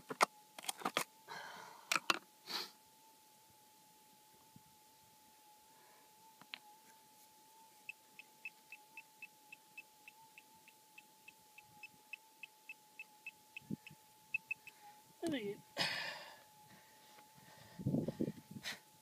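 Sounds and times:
metal detector threshold hum: 0.0 - 19.0
pinpointer beeping: 7.8 - 15.6.

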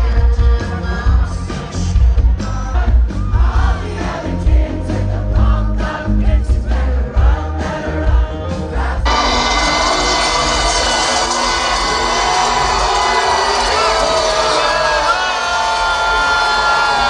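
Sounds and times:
live band over sound system: 0.0 - 17.0
crowd cheering: 9.1 - 17.0.

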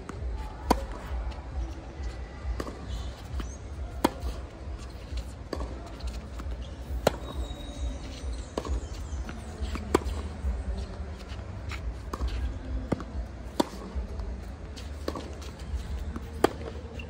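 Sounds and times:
racket striking tennis ball: 0.6 - 1.2, 2.6 - 10.4, 11.7 - 14.0, 14.7 - 17.0.

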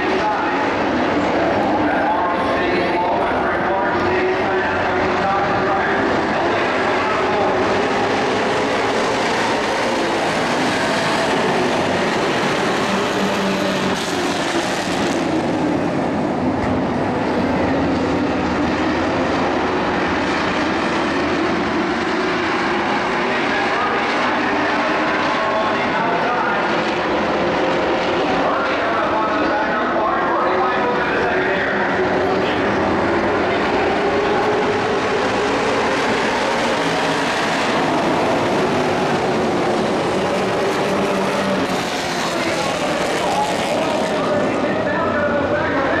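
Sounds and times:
race truck engines droning: 0.0 - 46.0.

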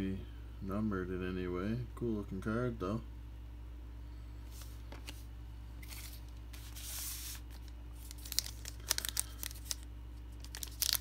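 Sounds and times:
foil wrapper crinkling: 5.8 - 11.0.

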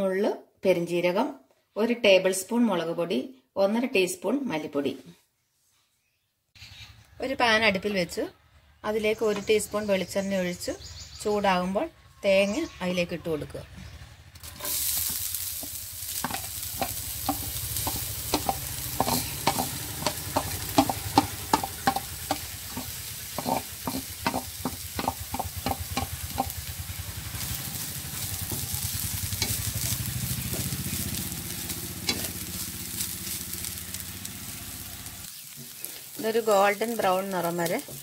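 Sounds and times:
spoon scraping metal: 14.4 - 26.1, 32.0 - 32.4
coconut sizzling in hot oil: 14.4 - 38.0.

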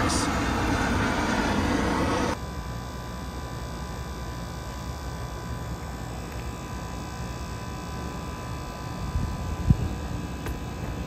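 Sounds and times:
faint whining tones: 0.0 - 2.4
loud rush: 0.0 - 2.4
condensing unit humming: 0.0 - 11.0.

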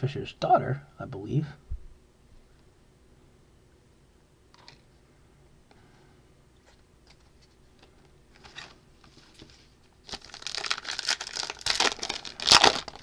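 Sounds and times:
card pack wrapper crinkling: 8.3 - 13.0.

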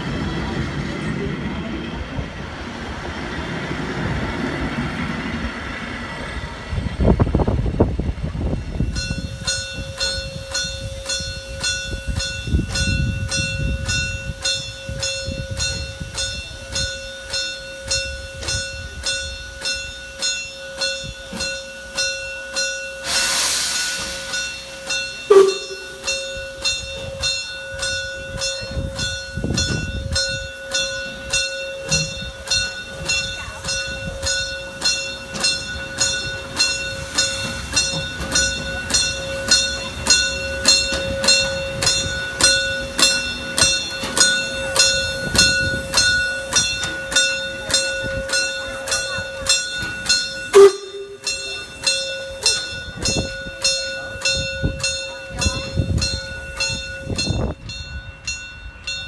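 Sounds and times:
train coaches rumbling past: 0.0 - 59.0
steam hissing: 20.8 - 55.0.

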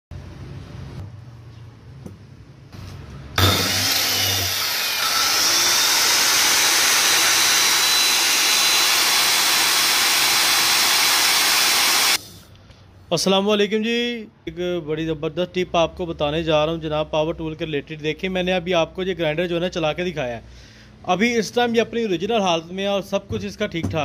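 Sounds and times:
angle grinder spinning: 3.4 - 12.2.

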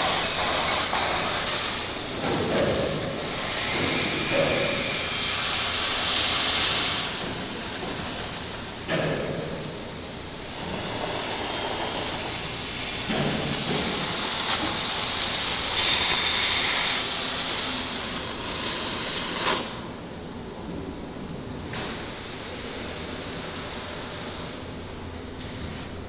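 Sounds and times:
cutting torch hissing: 0.0 - 8.7, 10.4 - 19.9.

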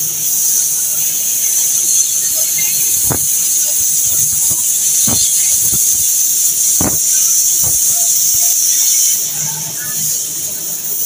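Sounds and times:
cutting torch hissing: 0.0 - 11.0
sharp pops: 2.4 - 8.6.

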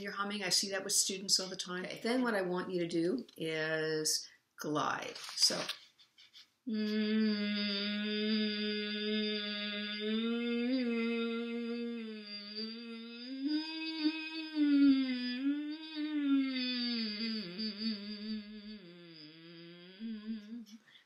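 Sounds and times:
woman singing a gliding note: 6.7 - 20.7.

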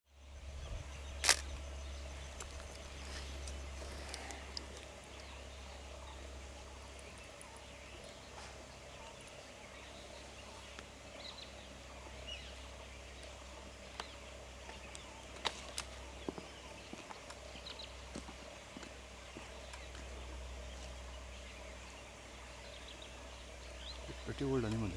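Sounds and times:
low steady hum: 0.1 - 24.9
sharp clicks: 1.2 - 1.5
bird chirps and calls: 19.2 - 24.9.

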